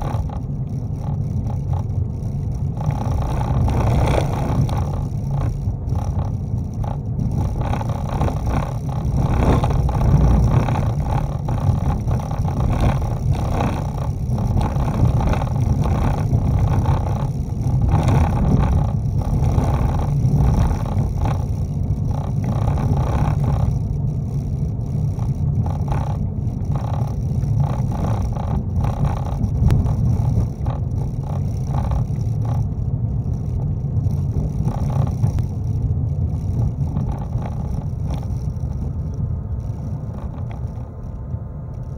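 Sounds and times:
car tyres and engine rumble: 0.0 - 41.9
gravel crackling under tyres: 0.0 - 41.9.

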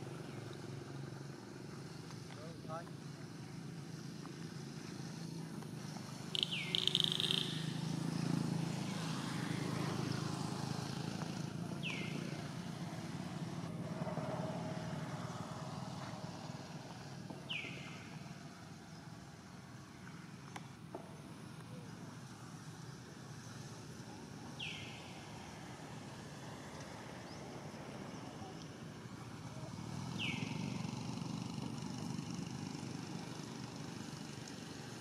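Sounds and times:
bird chirp sliding downward: 6.4 - 7.9.

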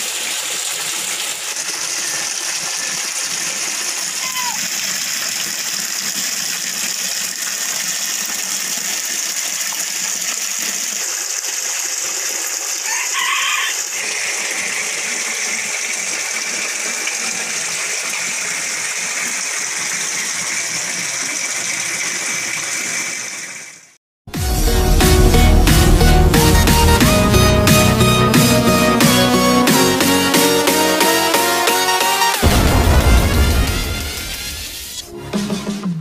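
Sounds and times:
water gushing and splashing: 0.0 - 23.9, 32.3 - 35.1
chicken call: 4.2 - 4.7, 12.8 - 14.2.

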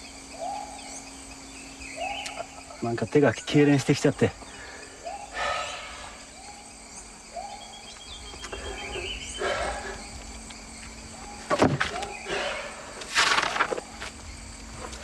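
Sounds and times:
faint steady hum: 0.0 - 15.0
rustling: 13.0 - 15.0.

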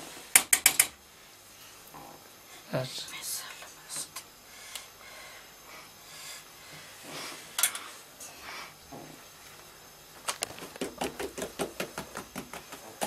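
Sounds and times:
dough rustling: 10.4 - 13.0
hands tapping dough on board: 10.6 - 13.0.

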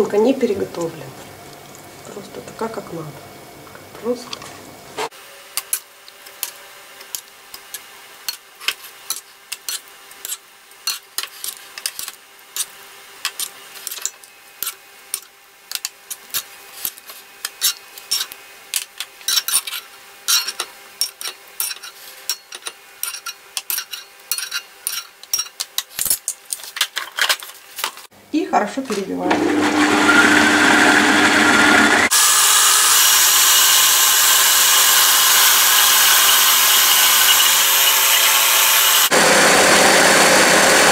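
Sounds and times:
metal spoon scraping frying pan: 7.1 - 18.4, 19.1 - 26.3.

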